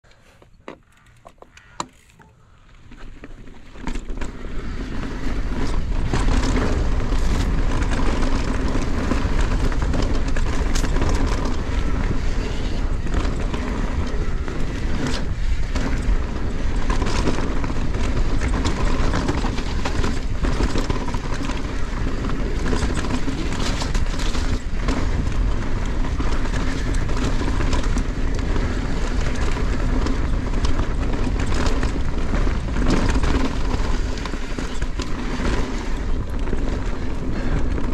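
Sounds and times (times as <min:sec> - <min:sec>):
bike clicking and rattling: 0:00.0 - 0:37.9
bike tyres rolling over dirt and stones: 0:00.1 - 0:37.9
wind on microphone: 0:04.1 - 0:37.9.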